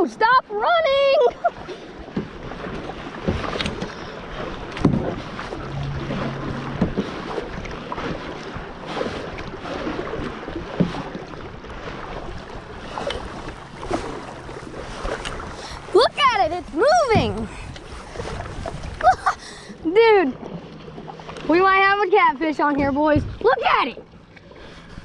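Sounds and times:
paddle splashing in water: 0.2s - 25.0s
wind noise on microphone: 17.0s - 19.3s.

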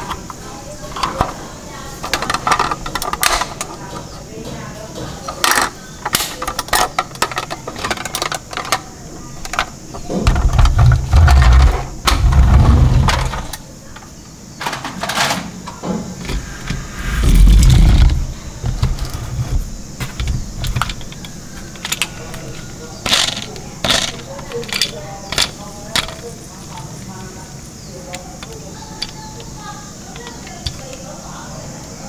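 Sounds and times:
plastic toy parts clattering: 2.0s - 4.1s, 5.3s - 15.5s, 16.2s - 27.4s, 28.0s - 31.2s
toys rumbling across table: 9.5s - 13.5s, 16.1s - 21.7s.

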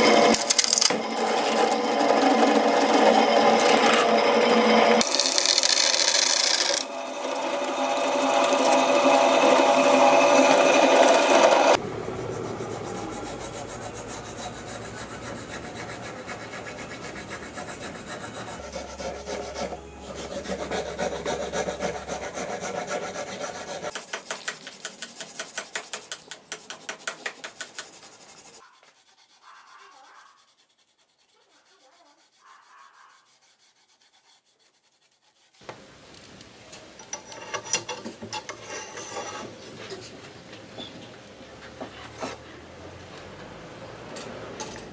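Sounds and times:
drill press boring wood: 0.0s - 11.8s
hand file rasping wood: 0.0s - 35.6s
sandpaper rubbing wood: 0.0s - 35.6s.

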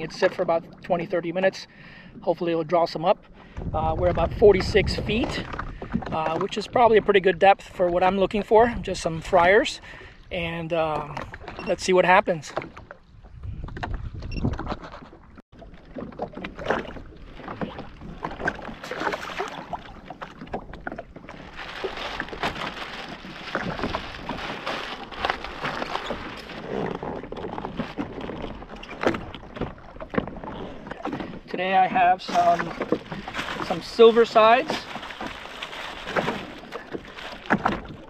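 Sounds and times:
water gurgling against hull: 0.0s - 38.0s
plastic bag rustling: 21.3s - 26.7s, 33.0s - 37.5s.

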